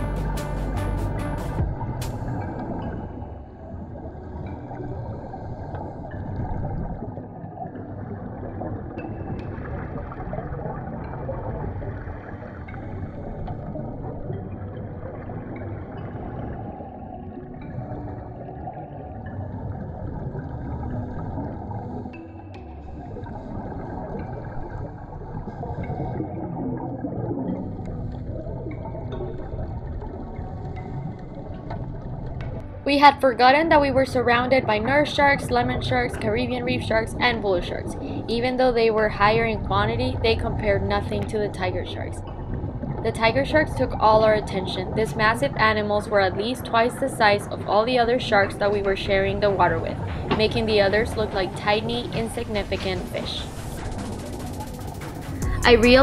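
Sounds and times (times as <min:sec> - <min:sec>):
muffled underwater water rush: 0:00.0 - 0:56.0
gurgling exhaled bubbles: 0:01.6 - 0:22.2, 0:23.0 - 0:32.7
regulator exhaust bubbles: 0:23.0 - 0:56.0.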